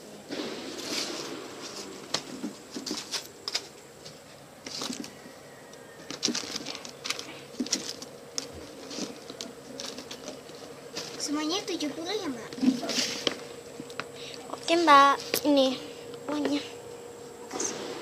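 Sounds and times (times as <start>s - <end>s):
toys clicking and rustling: 6.0s - 11.3s.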